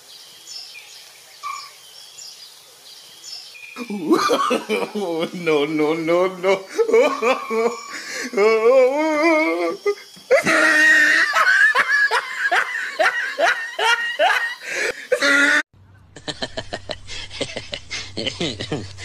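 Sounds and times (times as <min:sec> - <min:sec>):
person laughing loudly: 0:03.8 - 0:05.6, 0:06.5 - 0:19.0.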